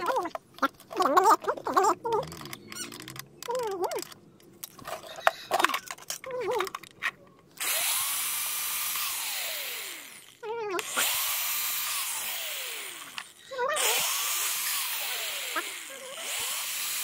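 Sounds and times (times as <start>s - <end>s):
electric drill boring plastic pipe: 7.6s - 17.0s.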